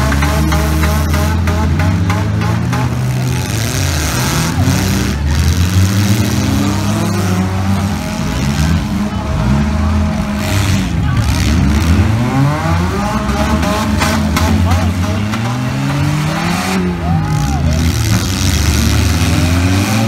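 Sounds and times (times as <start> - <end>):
cars colliding knocks: 0.0 - 9.3, 10.0 - 20.0
car engines revving: 0.0 - 20.0.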